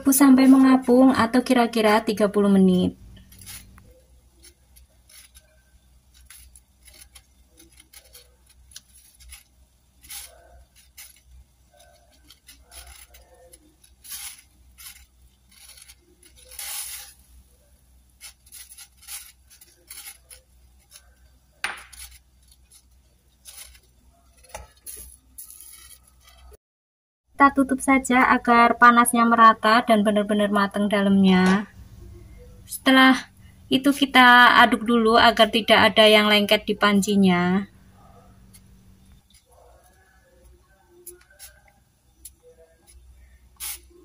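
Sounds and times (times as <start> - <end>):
water boiling with small pops: 3.1 - 17.2.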